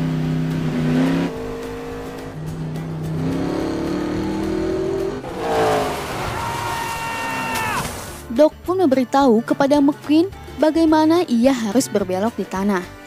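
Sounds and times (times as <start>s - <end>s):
race car engine revving: 0.0s - 7.6s
film music: 0.2s - 13.0s.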